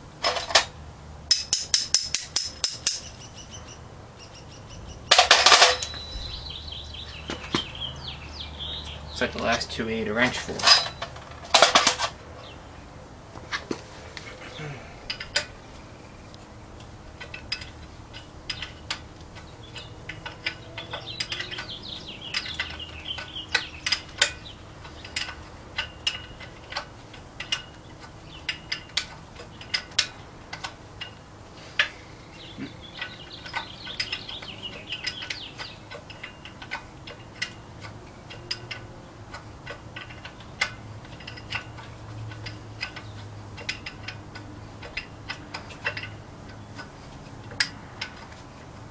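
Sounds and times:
ratchet wrench clicking: 1.3s - 3.2s, 15.0s - 15.6s, 16.8s - 31.2s, 33.0s - 48.4s.

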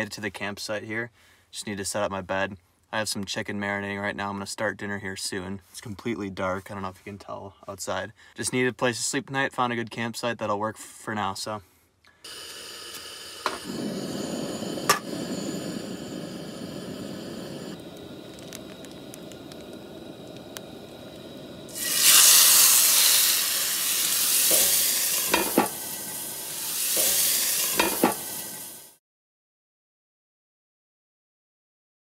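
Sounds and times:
chicken sizzling in a pan: 12.3s - 29.0s
low steady rushing: 13.6s - 21.8s.

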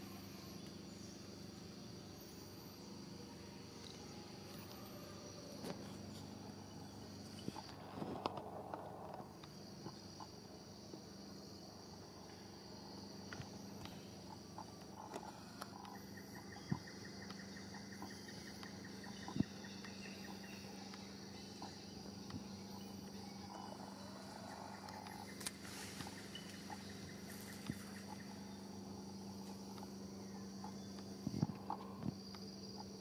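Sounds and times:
high-pitched insect chorus: 0.0s - 33.0s
fast pulsing insect trill: 9.4s - 33.0s.

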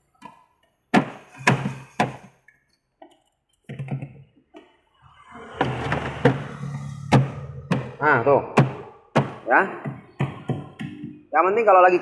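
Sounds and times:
plastic parts knocking: 0.0s - 4.8s, 7.1s - 11.2s.

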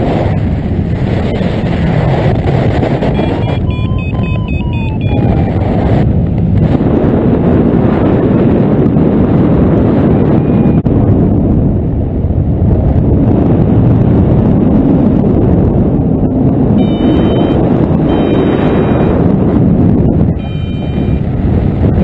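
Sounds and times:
wind buffeting microphone: 0.0s - 22.0s
short high electronic beeps: 3.0s - 5.6s, 16.8s - 19.0s, 20.4s - 21.2s.

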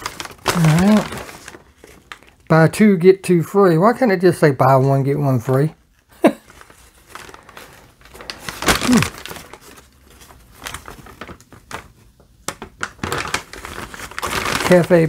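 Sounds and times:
packing material rustling: 0.0s - 2.5s, 6.3s - 15.0s.

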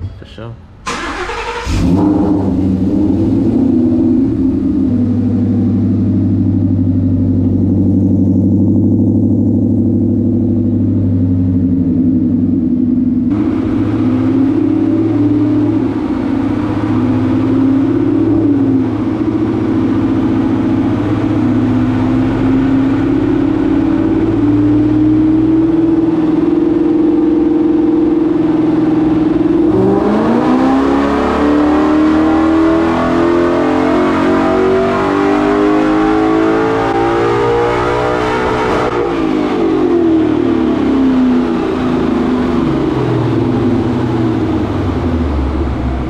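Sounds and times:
car engine idling: 0.0s - 29.7s, 39.5s - 46.0s.

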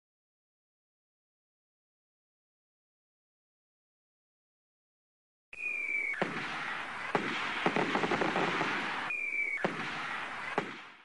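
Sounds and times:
firework crackle and pops: 5.6s - 11.0s
firework rocket whistling: 5.6s - 11.0s
firework bang: 6.1s - 11.0s.

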